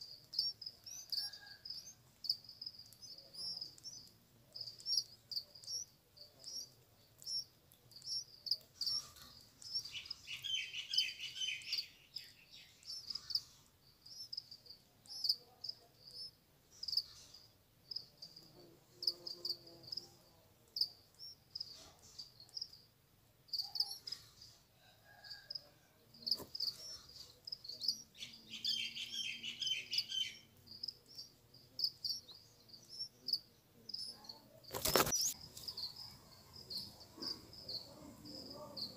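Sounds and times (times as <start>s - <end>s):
nestlings rapid chattering calls: 0.0s - 17.5s, 34.0s - 38.9s.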